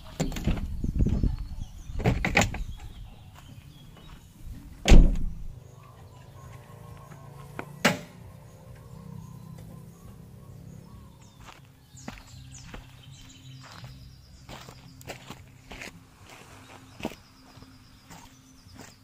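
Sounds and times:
van doors knocking and thudding: 0.0 - 1.3, 1.9 - 3.0, 4.7 - 5.6
heavy door thud: 4.8 - 5.5.

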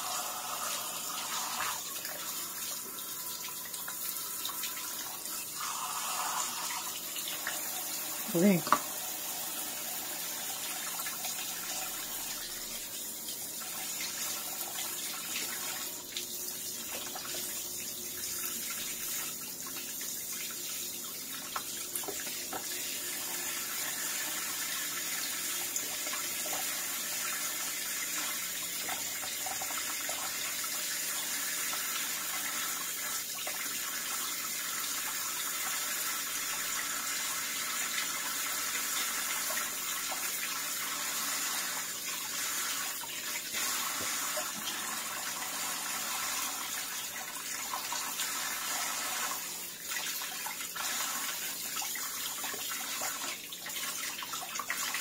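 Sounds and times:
faucet water splashing on plastic: 0.0 - 55.0.

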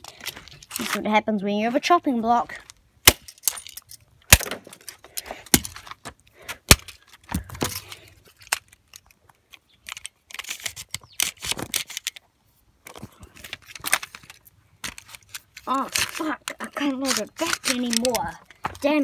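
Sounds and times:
rattling plastic clicks: 12.8 - 18.9.

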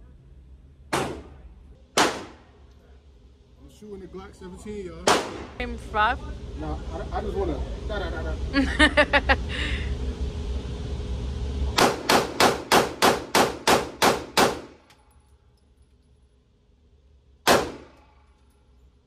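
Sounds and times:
pistol shots echoing indoors: 5.1 - 5.5, 11.8 - 14.9, 17.4 - 18.2.

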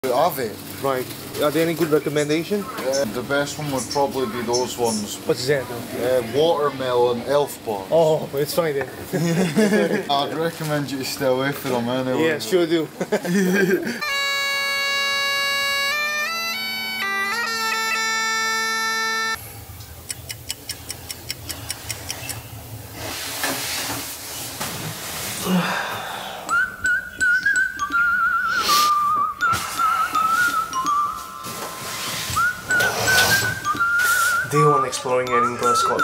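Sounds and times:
bagpipes playing over drone: 13.9 - 19.4
wavering whistled tone: 26.4 - 36.0.

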